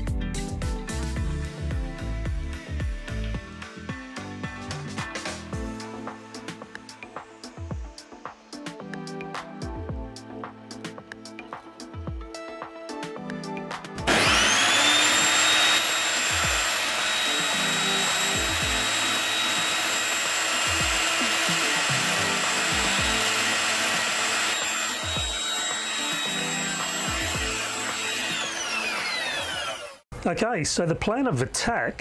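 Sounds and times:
background music with slow beat: 0.0s - 29.2s
table saw motor whine: 14.1s - 30.0s
wood fed through saw: 14.1s - 30.1s.

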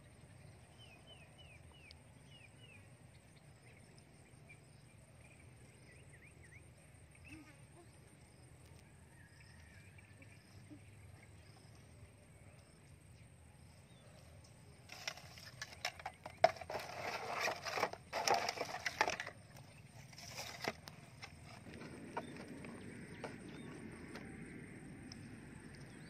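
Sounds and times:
plastic bottles clattering and crinkling: 14.9s - 22.5s.

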